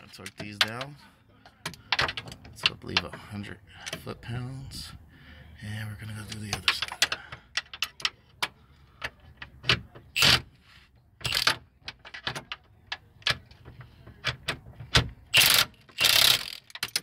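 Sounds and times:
hand ratchet ratcheting: 0:10.2 - 0:10.4, 0:11.2 - 0:12.4, 0:15.3 - 0:17.0.

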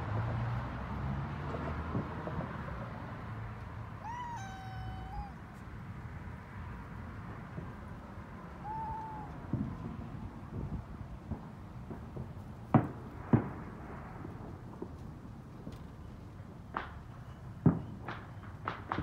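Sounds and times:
kitten meowing: 0:04.0 - 0:05.5, 0:08.6 - 0:09.4.

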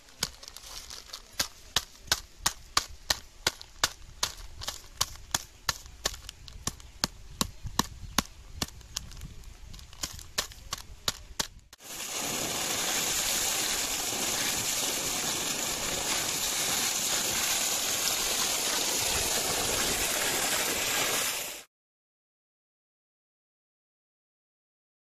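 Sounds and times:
water gushing from pipe: 0:11.8 - 0:21.7.

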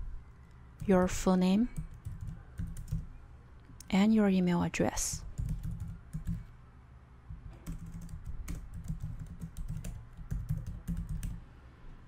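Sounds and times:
keyboard typing clicks: 0:00.8 - 0:03.1, 0:05.3 - 0:06.5, 0:07.4 - 0:11.4.

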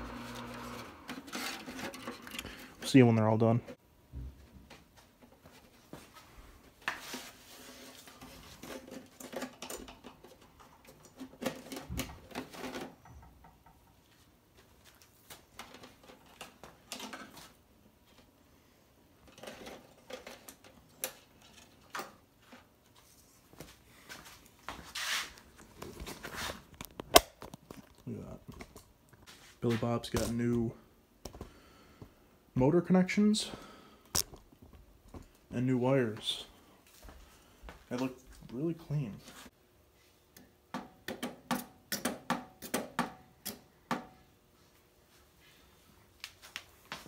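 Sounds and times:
parts clicking and rustling: 0:07.9 - 0:14.2, 0:14.9 - 0:18.3, 0:19.2 - 0:22.7.

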